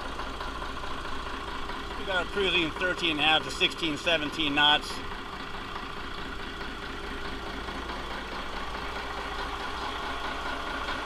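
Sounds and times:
boat engine idling: 0.0s - 11.0s.

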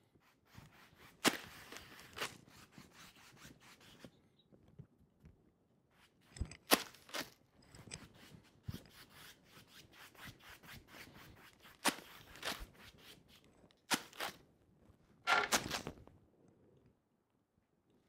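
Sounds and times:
sharp brush scrapes: 0.0s - 4.1s, 6.0s - 14.4s
paintbrush scrubbing on canvas: 0.0s - 4.2s, 7.8s - 14.4s.

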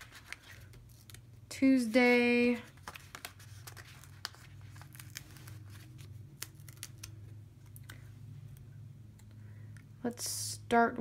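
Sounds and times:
paper sticker sheet crinkling: 0.0s - 1.4s, 2.0s - 8.6s.

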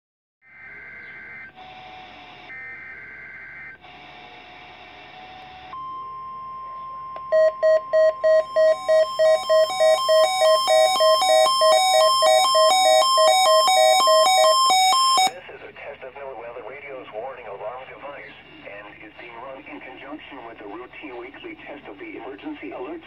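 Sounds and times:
radio hiss: 0.6s - 5.7s, 15.3s - 23.0s
rapid alert beeping: 7.2s - 15.4s
steady alert tone: 7.3s - 15.4s
warbling data bursts: 7.3s - 15.4s.

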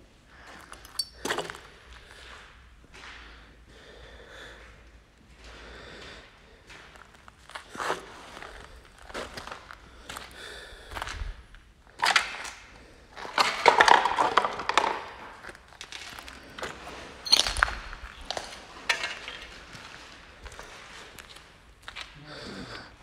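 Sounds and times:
footsteps crunching over debris: 5.2s - 11.6s, 13.1s - 22.2s.

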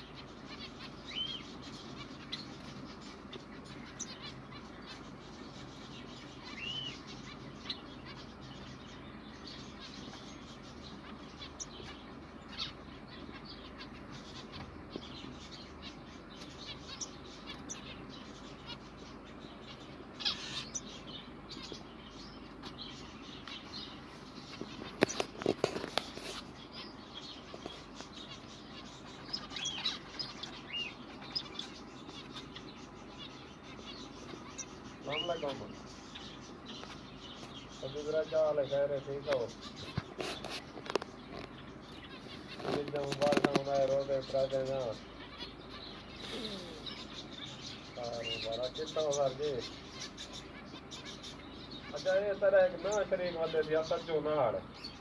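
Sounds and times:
finches chirping: 0.0s - 55.0s
sharp knocks and fluttering: 42.5s - 43.9s.

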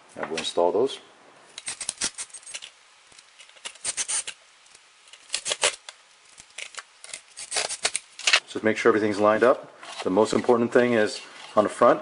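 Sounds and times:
small screws clicking and rattling: 1.6s - 8.1s.

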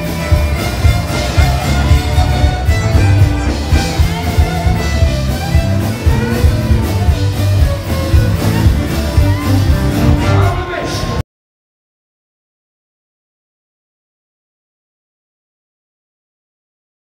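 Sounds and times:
live rock band playing: 0.0s - 11.2s.

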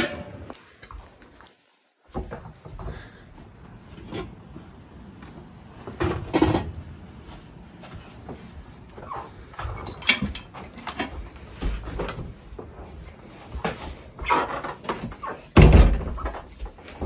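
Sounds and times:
footsteps: 0.0s - 15.0s
door opening and shutting: 14.2s - 17.0s.

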